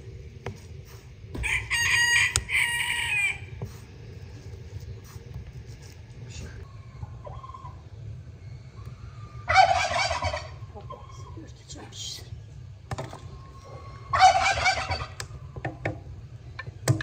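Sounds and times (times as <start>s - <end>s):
turkey gobbling: 7.0s - 7.8s, 9.2s - 11.4s, 13.4s - 15.6s.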